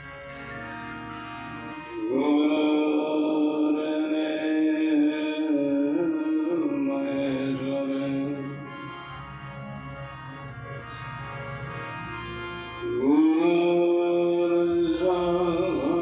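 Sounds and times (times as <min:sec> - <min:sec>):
harmonium drone: 0:00.0 - 0:16.0
man singing a long chant note: 0:01.9 - 0:08.7, 0:12.8 - 0:16.0.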